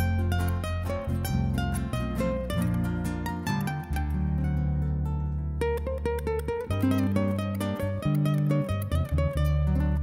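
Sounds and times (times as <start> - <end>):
classical guitar plucking: 0.0 - 10.0.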